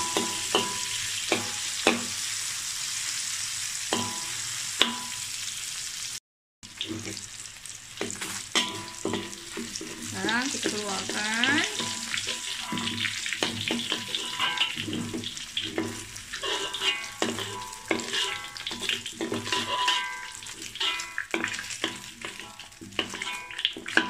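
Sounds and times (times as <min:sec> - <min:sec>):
food sizzling in hot oil: 0:00.0 - 0:24.0
metal spoon scraping a wok: 0:08.0 - 0:24.0.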